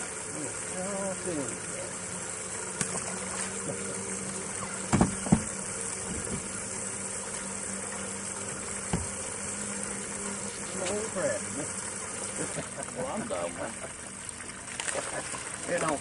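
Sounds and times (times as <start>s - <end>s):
boat motor humming: 0.0s - 16.0s
water lapping against hull: 0.0s - 16.0s
sharp knocks: 4.9s - 5.5s, 8.9s - 9.2s.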